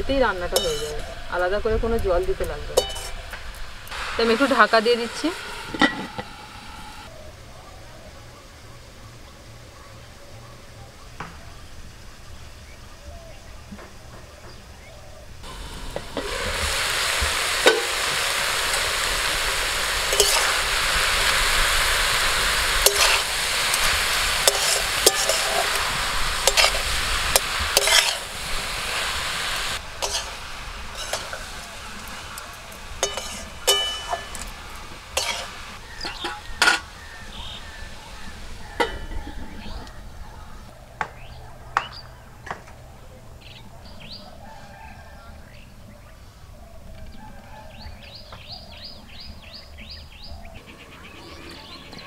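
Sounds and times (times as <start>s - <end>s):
curry sizzling in a pan: 0.0s - 7.2s, 15.4s - 39.7s
spoon stirring against pan: 0.5s - 1.2s, 2.8s - 3.3s, 20.1s - 20.6s, 22.8s - 28.5s, 29.8s - 36.9s.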